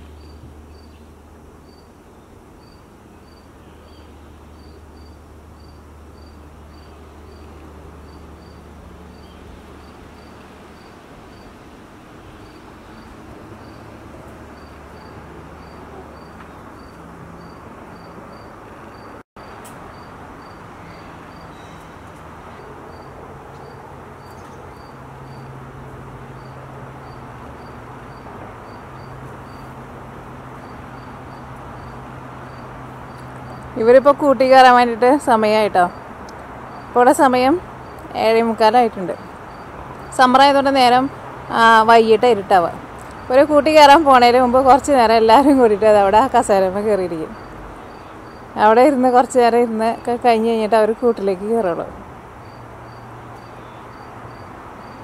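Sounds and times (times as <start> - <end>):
cricket chirping: 0.1 - 0.9, 1.6 - 1.9, 2.6 - 11.6, 12.4 - 13.9, 14.5 - 21.7, 22.5 - 25.6, 26.3 - 29.8, 30.5 - 33.7, 39.1 - 40.5, 47.3 - 48.5, 52.4 - 55.0.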